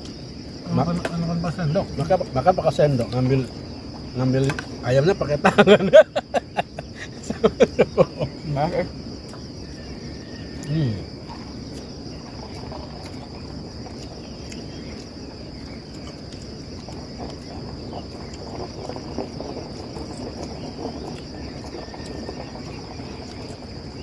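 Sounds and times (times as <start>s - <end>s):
insects chirring: 0.0s - 24.0s
soft eating sounds: 9.2s - 24.0s.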